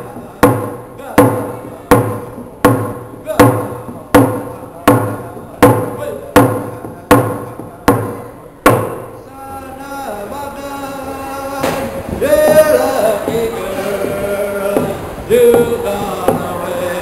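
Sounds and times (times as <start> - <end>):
hand drum struck with beater: 0.0 - 9.2, 11.6 - 17.0
man singing: 9.2 - 17.0.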